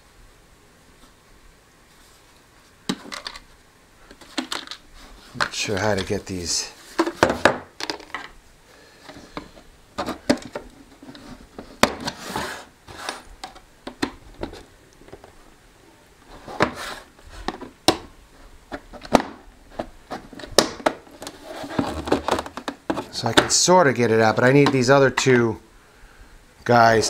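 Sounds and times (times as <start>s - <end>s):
plastic speaker housing handling: 18.7s - 23.5s.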